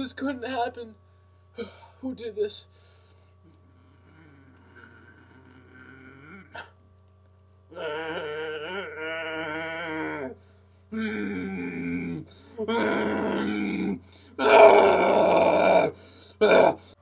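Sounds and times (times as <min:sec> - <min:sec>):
man wailing: 0:07.7 - 0:16.9.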